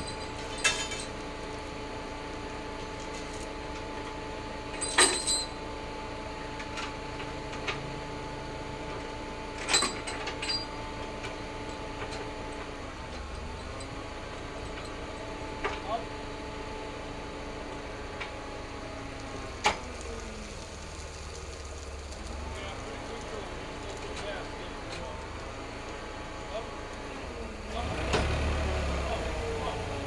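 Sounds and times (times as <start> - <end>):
forklift engine running: 0.0 - 30.0.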